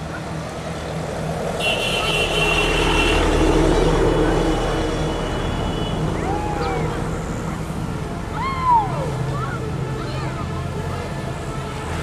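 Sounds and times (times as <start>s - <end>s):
vehicle engine passing: 0.0s - 12.0s.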